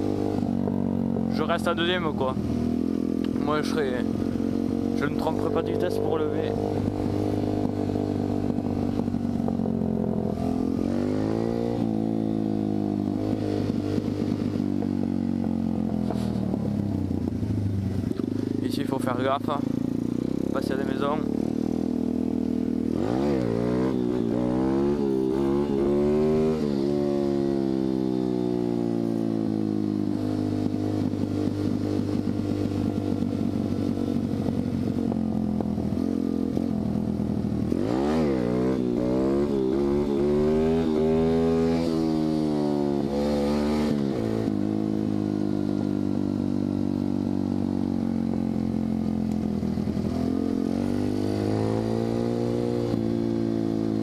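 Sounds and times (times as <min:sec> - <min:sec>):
dirt bike engine revving: 0:09.7 - 0:14.6, 0:19.6 - 0:28.9, 0:37.6 - 0:45.2, 0:49.9 - 0:54.0.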